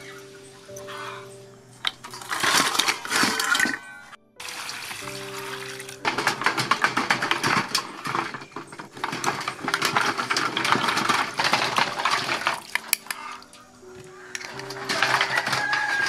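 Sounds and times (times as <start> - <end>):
water splashing in a steel bowl: 4.4 - 8.4, 9.0 - 13.6.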